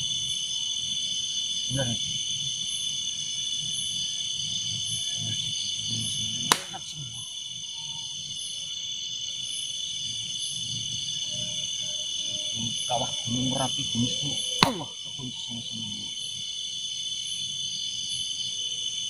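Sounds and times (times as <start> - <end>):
crickets trilling: 0.0 - 19.0
sharp click: 6.5 - 6.8.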